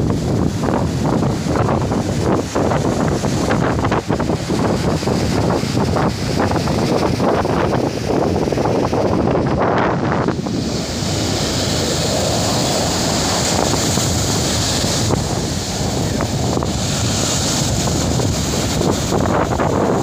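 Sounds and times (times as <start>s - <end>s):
waves breaking on sand: 0.0s - 20.0s
wind buffeting microphone: 0.0s - 20.0s.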